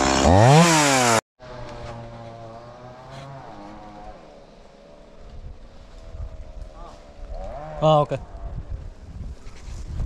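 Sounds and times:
chainsaw revving: 0.0 - 4.4.

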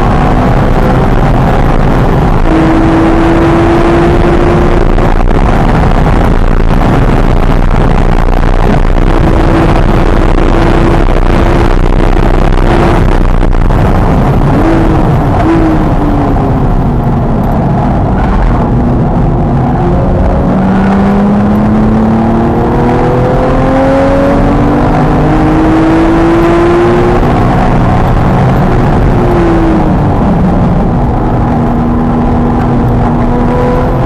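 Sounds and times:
car engine at high revs: 0.0 - 34.0
road and wind noise: 0.0 - 34.0.

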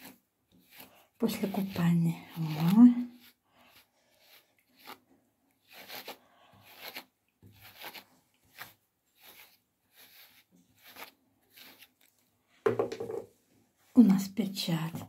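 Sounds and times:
brush swishing through fur: 0.0 - 5.0, 5.6 - 12.0.

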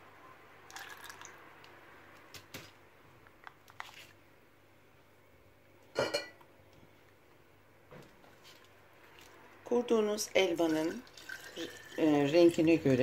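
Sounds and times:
glass clinking: 6.0 - 6.4.

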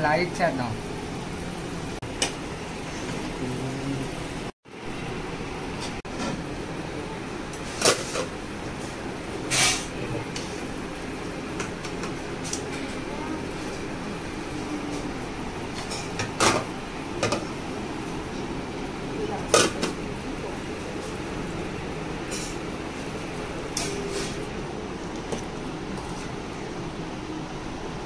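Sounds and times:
steady background hum: 0.0 - 28.0.

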